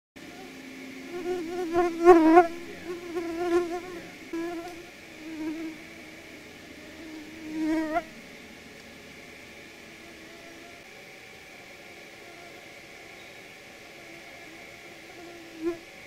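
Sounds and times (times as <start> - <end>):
flying insect buzzing: 0.2 - 8.3, 9.6 - 10.9, 11.8 - 16.0.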